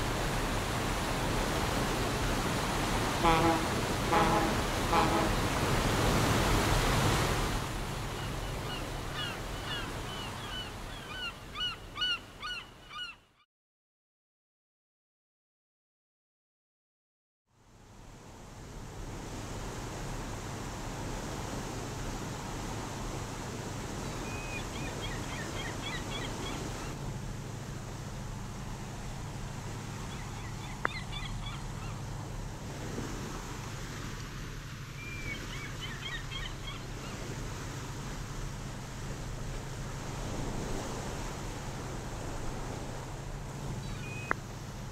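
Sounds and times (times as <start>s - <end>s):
sea noise: 0.0s - 13.2s, 17.6s - 44.9s
wind and waves: 0.0s - 13.3s, 17.5s - 44.9s
gulls calling: 3.0s - 5.6s, 8.0s - 13.2s, 24.0s - 27.0s, 29.9s - 32.2s, 35.0s - 37.3s.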